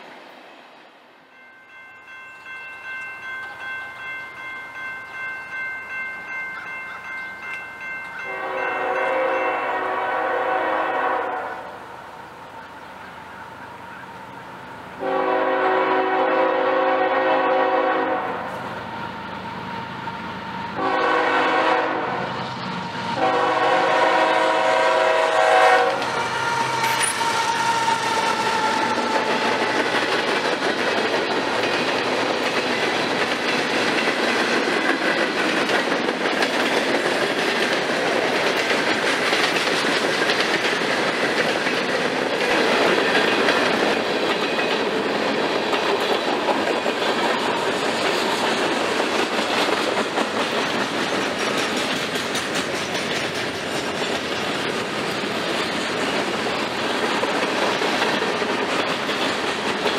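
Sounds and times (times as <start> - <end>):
locomotive horn blasts: 8.2 - 11.8, 15.0 - 18.6, 20.8 - 22.3, 23.2 - 27.8
train wheels clacking on rails: 22.5 - 59.9.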